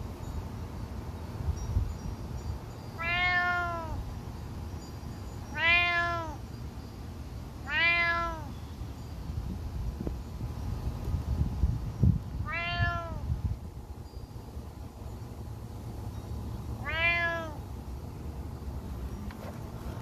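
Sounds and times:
cat meowing: 3.0s - 4.0s, 5.5s - 6.4s, 7.6s - 8.5s, 12.4s - 13.2s, 16.8s - 17.6s.

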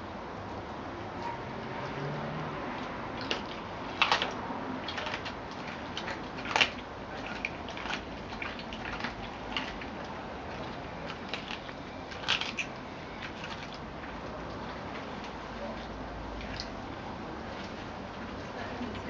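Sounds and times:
dog crunching meat and bone: 1.7s - 16.8s.

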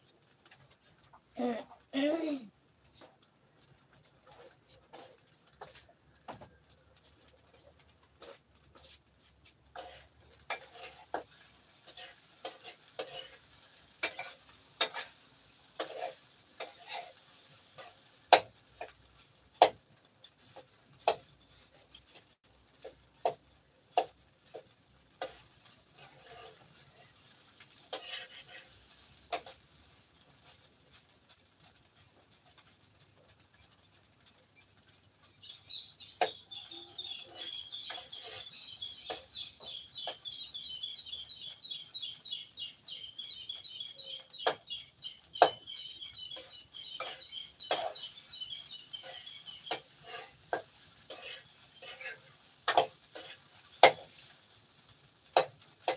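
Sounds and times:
utensils clinking on cookware: 9.8s - 18.9s, 46.3s - 54.1s
chickens clucking and cheeping: 34.2s - 50.2s.

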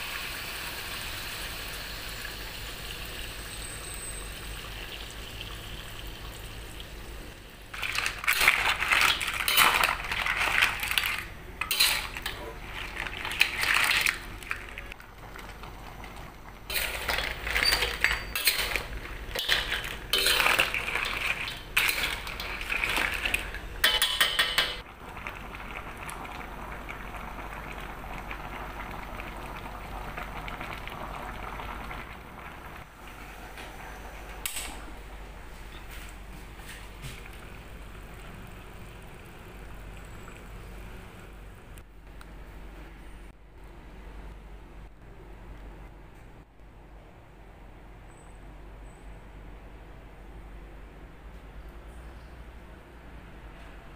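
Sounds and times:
crab shells clattering in a wok: 7.7s - 14.8s, 16.7s - 24.8s.

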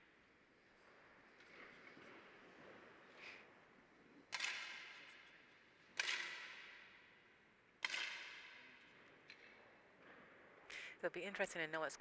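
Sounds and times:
air rifle shots echoing: 4.3s - 5.1s.

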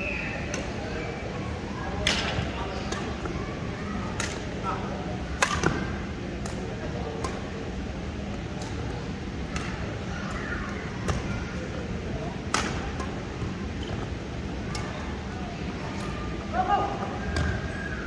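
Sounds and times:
racket hitting shuttlecock: 5.4s - 5.8s, 12.5s - 13.1s.

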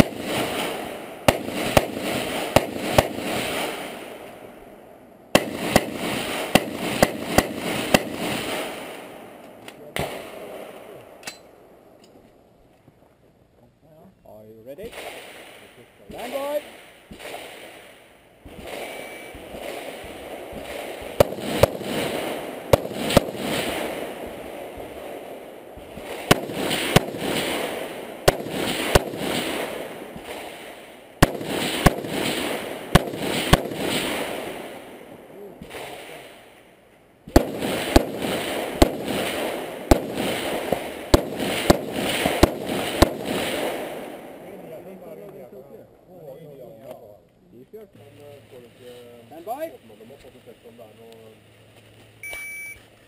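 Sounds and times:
rifle shots: 0.0s - 4.6s, 5.3s - 11.5s, 14.8s - 36.5s, 37.3s - 45.0s
rumble of gunshot echo: 0.0s - 4.6s, 5.3s - 11.2s, 14.8s - 36.4s, 37.3s - 45.5s.

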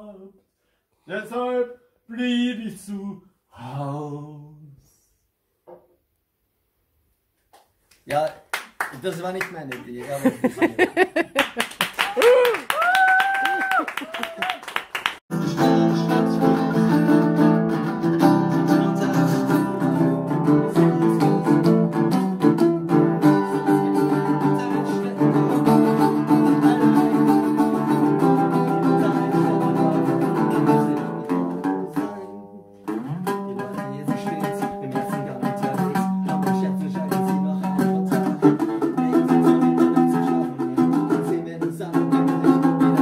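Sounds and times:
resonator guitar picking: 15.3s - 43.0s.

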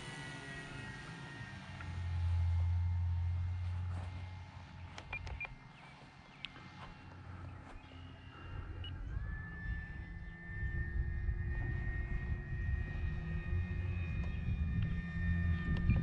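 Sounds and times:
model airplane motor whine: 0.0s - 16.0s
low rumble: 6.4s - 16.0s.

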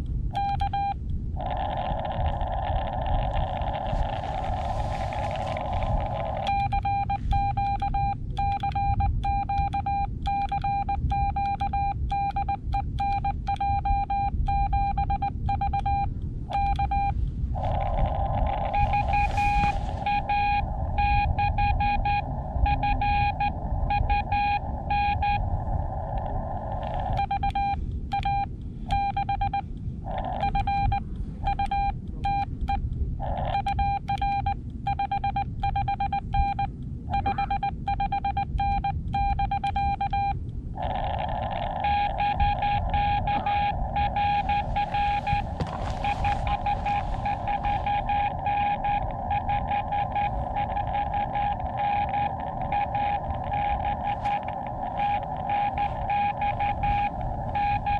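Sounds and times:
low rumble: 0.0s - 57.9s
radio band hiss: 1.4s - 6.6s, 17.5s - 21.4s, 40.8s - 57.9s
morse code tone: 3.7s - 25.5s, 26.8s - 29.6s, 30.4s - 32.5s, 33.5s - 40.4s, 41.6s - 57.9s.

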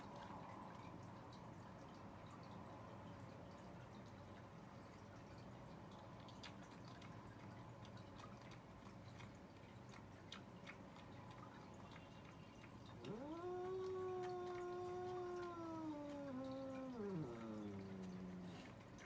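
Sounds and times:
cat yowling: 12.9s - 18.7s.

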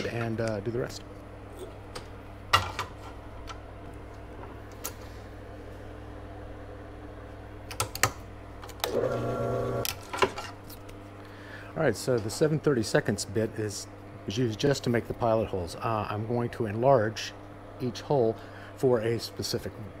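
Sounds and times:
steady low hum: 0.0s - 20.0s
drill press whir: 8.6s - 9.9s.

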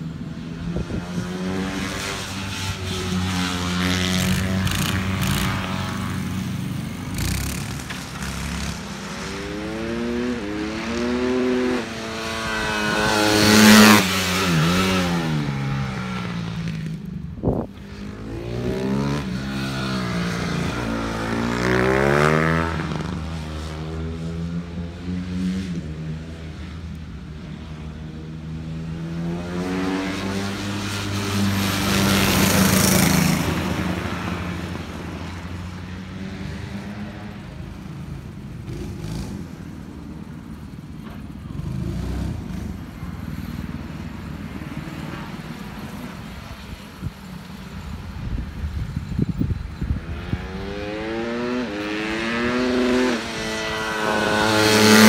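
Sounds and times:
motorcycle engine revving: 0.5s - 26.7s, 48.6s - 55.0s.

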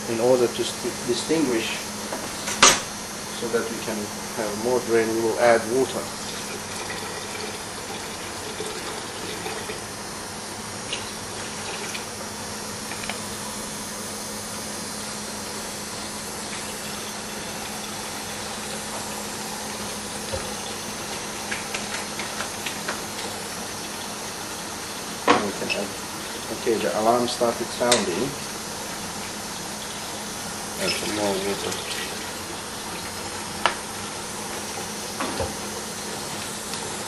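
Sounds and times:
fuel pump humming: 0.0s - 37.0s
liquid flowing: 0.2s - 37.0s.

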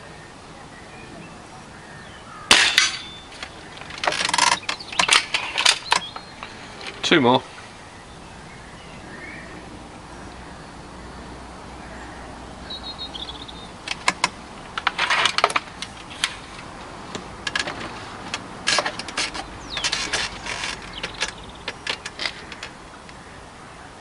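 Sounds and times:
rifle handling knocks and rattles: 2.5s - 7.0s, 13.8s - 22.8s.

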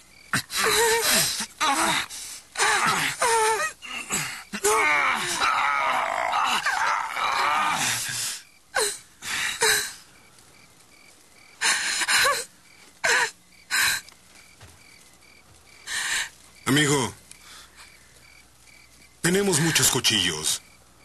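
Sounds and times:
crickets chirping: 0.0s - 21.0s
woman crying and sobbing: 0.4s - 5.4s, 11.6s - 14.1s.

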